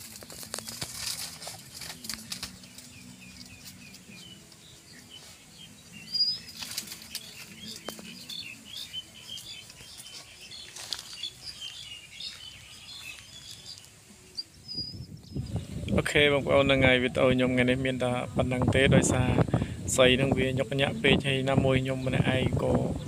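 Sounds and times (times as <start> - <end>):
dry sticks and brush rustling: 0.0 - 14.6
small birds chirping: 0.0 - 23.0.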